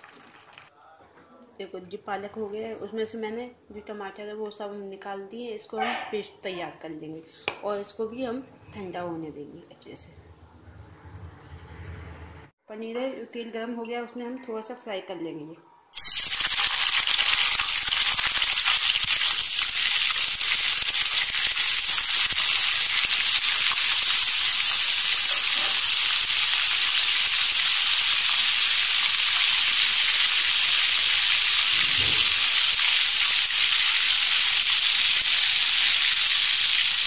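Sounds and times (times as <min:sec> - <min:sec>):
cheese sizzling in hot oil: 0:16.0 - 0:37.0.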